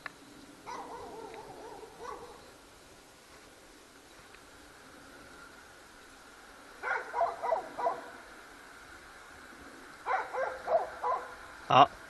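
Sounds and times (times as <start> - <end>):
dog yapping: 0.7 - 2.4, 6.8 - 8.1, 10.1 - 11.3.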